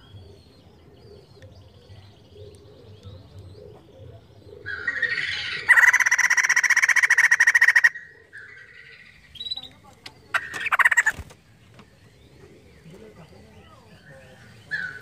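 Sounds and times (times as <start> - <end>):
faint high bird twittering: 0.0 - 15.0
bird cackling rattle: 4.7 - 8.1, 10.3 - 11.9.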